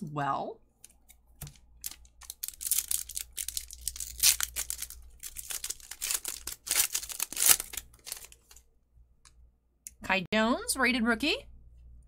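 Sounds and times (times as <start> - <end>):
foil wrapper tearing and crinkling: 1.4 - 8.6.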